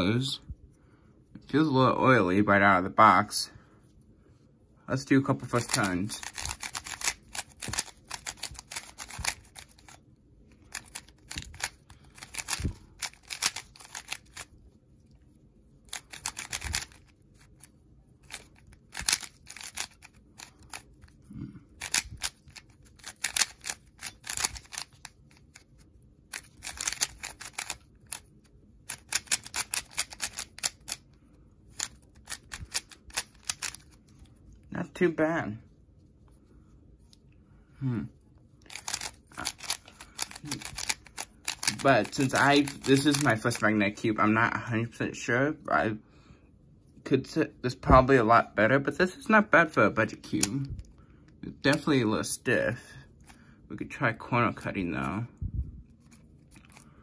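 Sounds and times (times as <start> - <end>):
puzzle cube plastic clicks: 5.4 - 10.0, 10.6 - 14.5, 15.9 - 17.5, 18.2 - 28.3, 28.9 - 31.0, 31.7 - 34.0, 38.6 - 43.6, 50.3 - 50.8.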